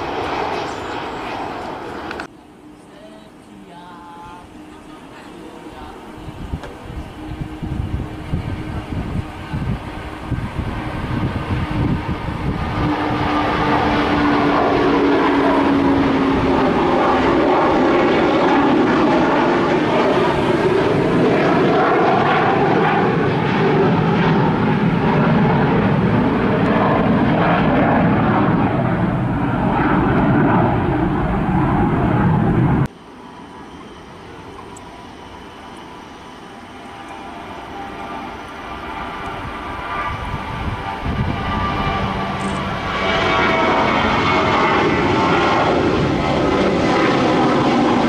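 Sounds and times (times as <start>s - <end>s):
distant jet engine hum: 0.0s - 48.0s
loud jet engine noise: 0.0s - 48.0s.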